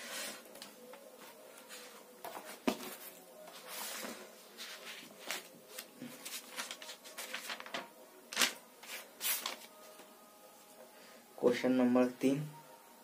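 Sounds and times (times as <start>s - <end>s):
pages rustling: 0.1s - 10.1s.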